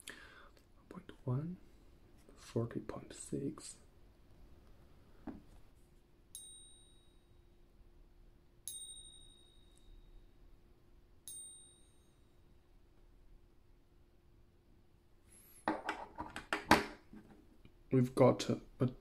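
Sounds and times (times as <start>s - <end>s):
silver coin ringing: 6.3s - 7.4s, 8.6s - 10.4s, 11.2s - 12.4s.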